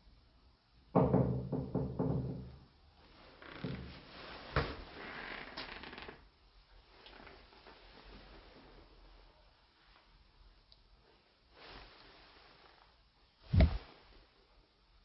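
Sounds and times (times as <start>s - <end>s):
quick knocks: 13.5s - 13.8s
soft scuffing: 13.5s - 13.8s.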